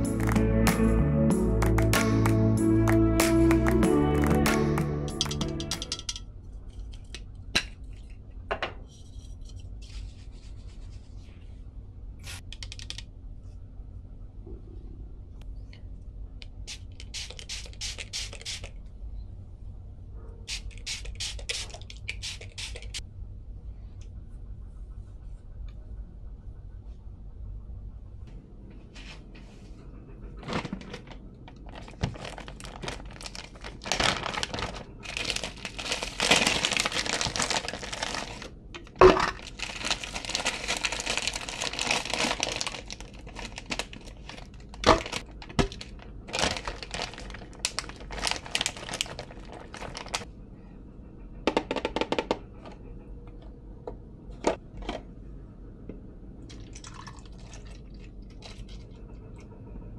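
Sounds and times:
plastic bag crinkling: 0:30.4 - 0:38.6, 0:39.2 - 0:50.2
liquid pouring into cup: 0:56.5 - 0:58.9.

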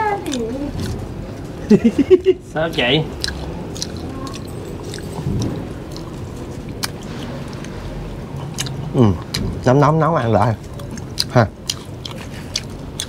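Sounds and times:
low background noise: 0:00.0 - 0:13.0.

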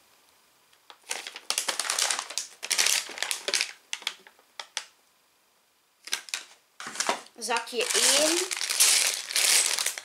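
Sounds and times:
paper bags crinkling: 0:00.9 - 0:04.9, 0:06.0 - 0:10.0.

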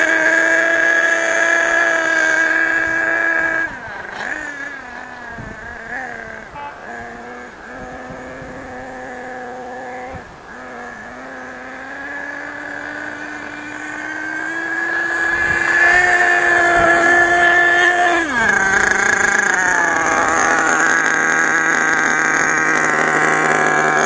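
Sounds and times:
small nitro engine buzzing: 0:00.0 - 0:24.0.

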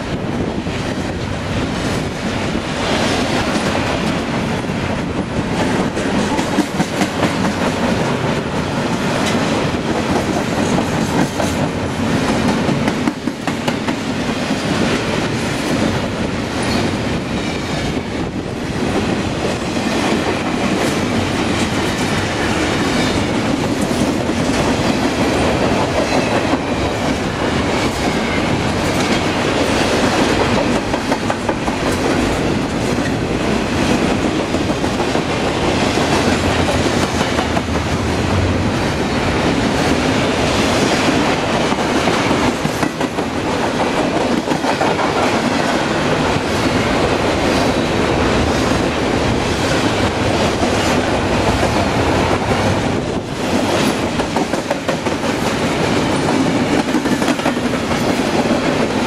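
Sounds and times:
freight train rolling past: 0:00.0 - 0:59.0
steel wheels clacking over rail joints: 0:00.7 - 0:18.1.

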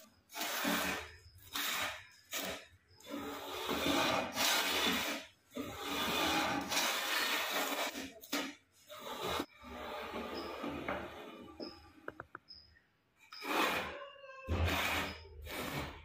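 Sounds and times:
hand plane shaving wood: 0:00.3 - 0:10.8.

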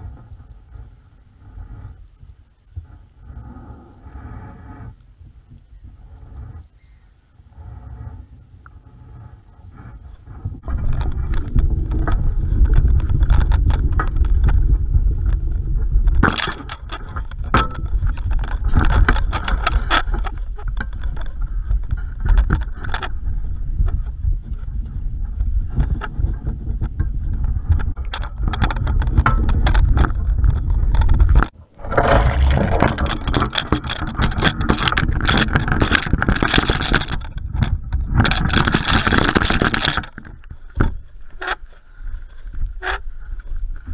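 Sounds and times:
heavy low rumble: 0:30.8 - 0:34.1
water sloshing: 0:31.6 - 0:33.6.

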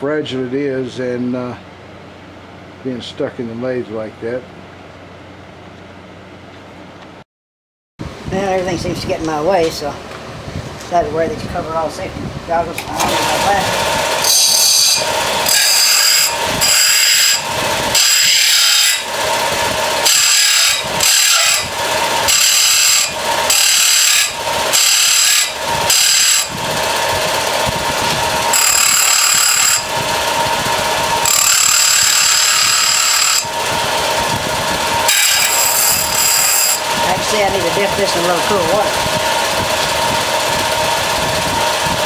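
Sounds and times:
sander motor running: 0:12.8 - 0:42.0
disc sander grinding metal: 0:12.9 - 0:42.0.

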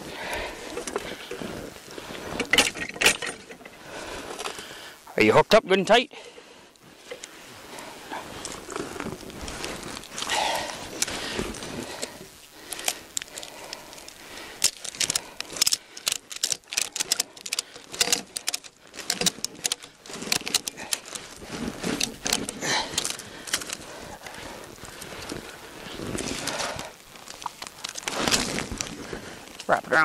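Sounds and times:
ratchet strap clicking: 0:12.0 - 0:24.4.

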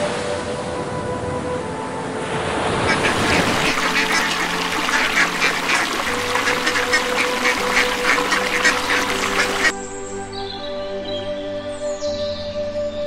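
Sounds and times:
ducks quacking: 0:02.9 - 0:09.7.

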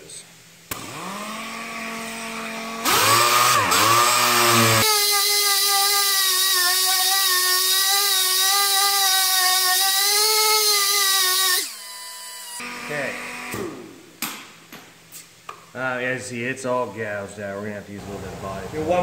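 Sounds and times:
orbital sander whining: 0:00.8 - 0:13.5.

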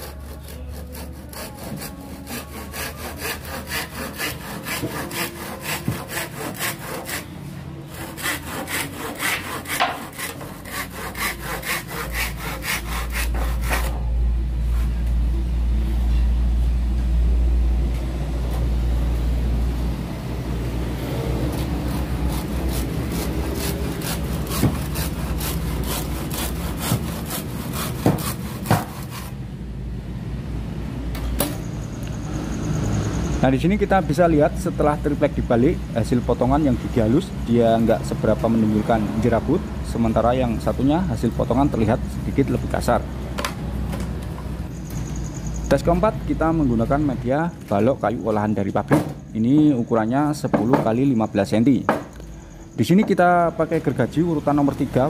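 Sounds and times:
hand saw cutting plywood: 0:00.0 - 0:07.3, 0:07.9 - 0:14.0, 0:21.4 - 0:29.3.

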